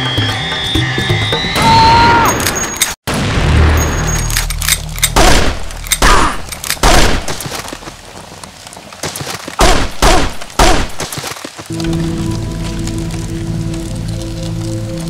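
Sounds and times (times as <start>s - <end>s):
gunshots: 3.1s - 7.6s, 9.0s - 11.4s.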